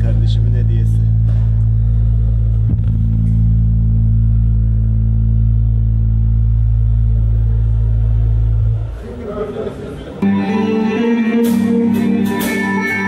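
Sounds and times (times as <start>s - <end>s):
low amplified drone: 0.0s - 9.3s.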